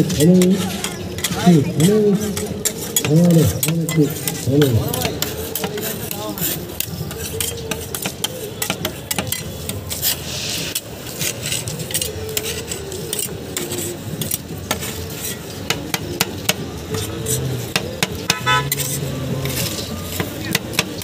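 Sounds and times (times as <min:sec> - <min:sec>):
metal spatulas clicking and tapping: 0:00.3 - 0:10.2, 0:10.8 - 0:21.0
spatula scraping metal plate: 0:16.4 - 0:20.8.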